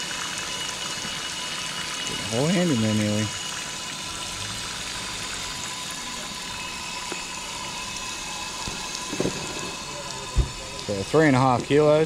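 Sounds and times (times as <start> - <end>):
tap water splashing on steel: 8.5 - 10.9.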